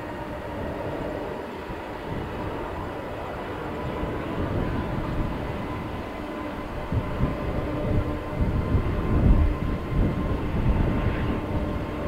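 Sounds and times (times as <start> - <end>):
jet engine rumble with whine: 0.0 - 12.0.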